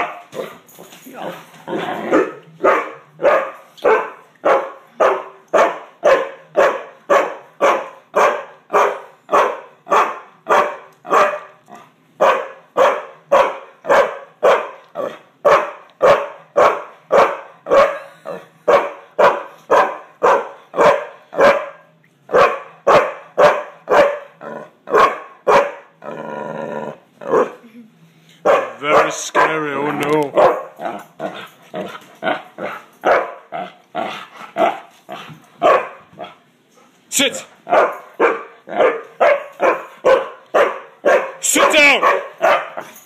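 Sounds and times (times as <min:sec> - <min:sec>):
dog barking: 0:00.0 - 0:00.6, 0:02.1 - 0:11.6, 0:12.2 - 0:18.0, 0:18.6 - 0:26.0, 0:27.3 - 0:27.6, 0:28.4 - 0:33.5, 0:35.6 - 0:36.0, 0:37.7 - 0:43.0.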